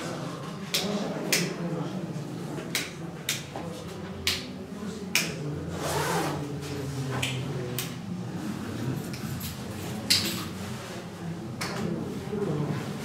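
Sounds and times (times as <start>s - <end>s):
sharp clicks in echoing room: 0.5s - 1.9s, 2.6s - 5.6s, 7.1s - 8.1s, 9.1s - 10.6s, 11.6s - 12.0s.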